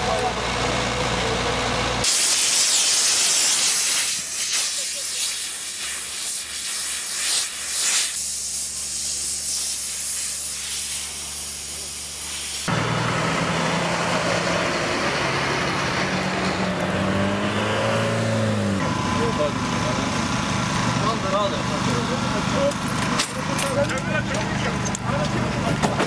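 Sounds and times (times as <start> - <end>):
lorry diesel engine droning: 0.0 - 2.1, 11.1 - 26.0
push broom sweeping asphalt: 2.0 - 12.7
steady hiss: 2.1 - 12.7.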